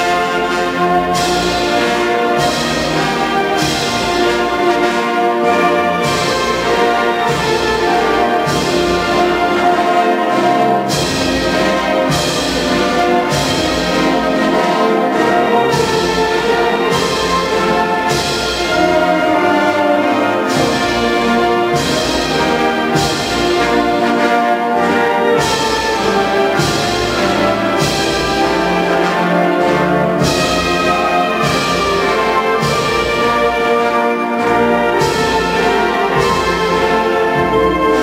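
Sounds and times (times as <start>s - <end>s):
wind band playing a march: 0.0s - 38.0s.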